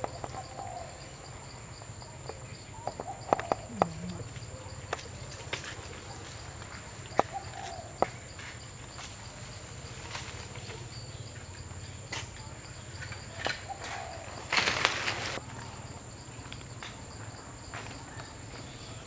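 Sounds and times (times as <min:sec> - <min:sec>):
rustling: 0:13.1 - 0:15.4.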